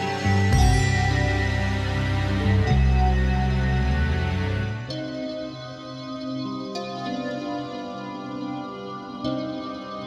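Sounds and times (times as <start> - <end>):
sustained chords with low bass: 0.0 - 5.1.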